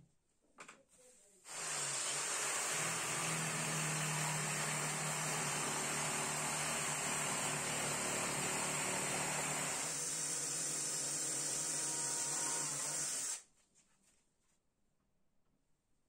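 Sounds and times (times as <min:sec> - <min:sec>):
cordless drill running: 0:01.5 - 0:13.4
electric jigsaw sawing wood: 0:01.5 - 0:13.4.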